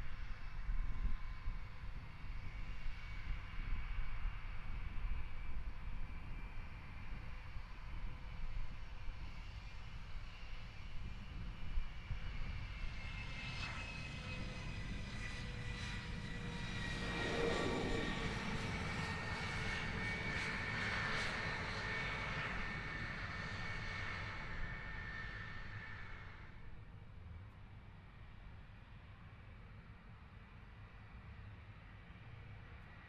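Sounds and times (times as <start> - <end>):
jet engines whining roar: 13.8 - 26.4.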